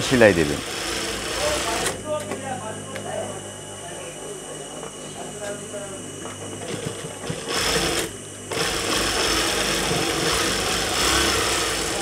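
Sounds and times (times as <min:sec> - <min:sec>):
industrial sewing machine stitching: 0:00.0 - 0:02.0, 0:07.3 - 0:12.0.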